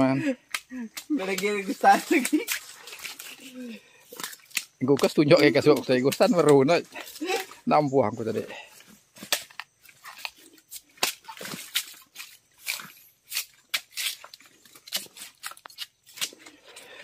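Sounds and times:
stems snapping and rustling: 0:00.4 - 0:07.6, 0:09.2 - 0:16.9
machete chopping palm stems: 0:09.2 - 0:16.6.

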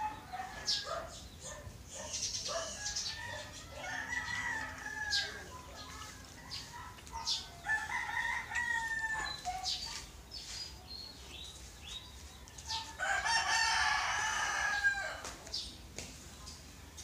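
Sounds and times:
rooster crowing: 0:02.6 - 0:05.6, 0:07.6 - 0:09.4, 0:12.8 - 0:15.3.

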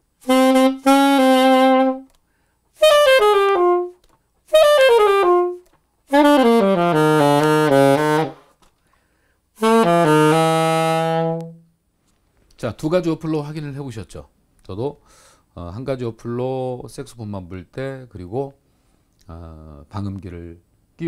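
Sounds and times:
alto saxophone phrases: 0:00.2 - 0:02.2, 0:02.8 - 0:08.5, 0:09.6 - 0:11.7.

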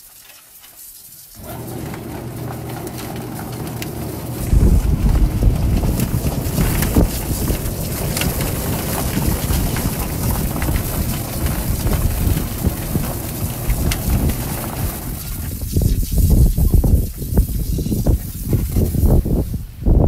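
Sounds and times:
water hose spraying: 0:00.0 - 0:19.7.

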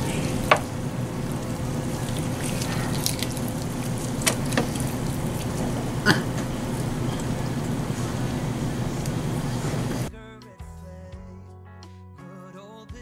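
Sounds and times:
wet eating sounds: 0:00.0 - 0:09.9
background hum: 0:00.0 - 0:10.1.

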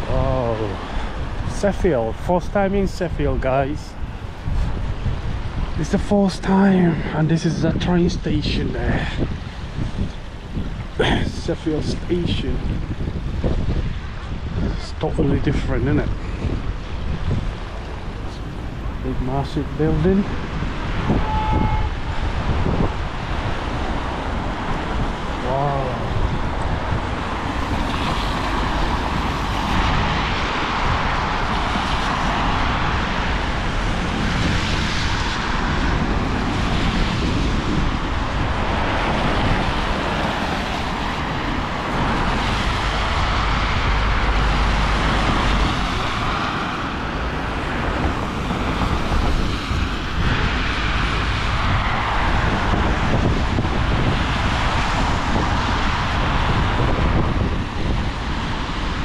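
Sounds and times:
tyres hissing on wet road: 0:00.0 - 0:01.6, 0:22.0 - 0:59.0
rain: 0:00.0 - 0:02.3, 0:08.6 - 0:14.8, 0:16.0 - 0:59.0
wind noise on microphone: 0:00.0 - 0:59.0.

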